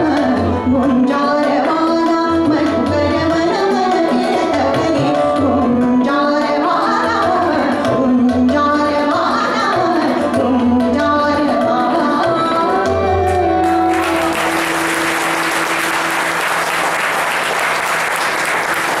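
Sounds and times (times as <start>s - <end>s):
woman singing: 0.0s - 14.3s
tabla: 0.0s - 19.0s
audience applause: 13.6s - 19.0s.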